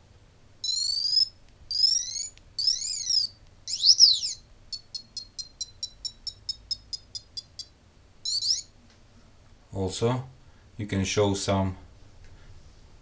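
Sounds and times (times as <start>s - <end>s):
electronic buzzer chirps: 0.6s - 8.7s.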